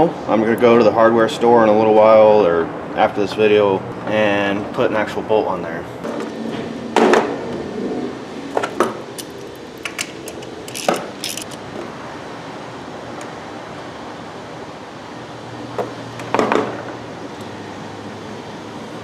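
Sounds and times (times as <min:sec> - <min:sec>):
small metal clinks: 0:09.2 - 0:11.6.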